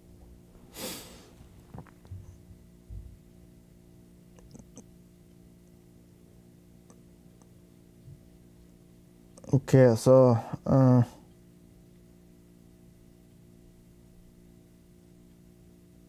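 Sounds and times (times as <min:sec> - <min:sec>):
steady electrical hum: 0:00.0 - 0:16.0
soft low thumps: 0:01.7 - 0:03.3.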